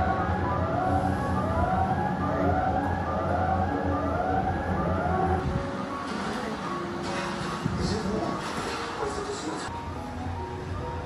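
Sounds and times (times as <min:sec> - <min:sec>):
siren-like wailing: 0:00.0 - 0:05.9
steady low hum: 0:00.0 - 0:06.0.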